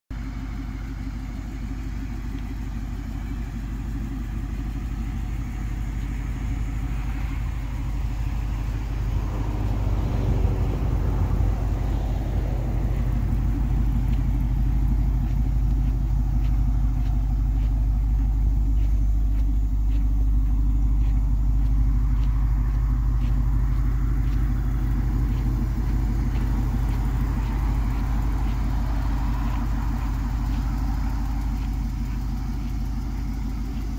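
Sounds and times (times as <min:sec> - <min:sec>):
truck engine idling: 0:00.1 - 0:33.9
faint light ticks: 0:01.8 - 0:07.4, 0:12.9 - 0:33.9.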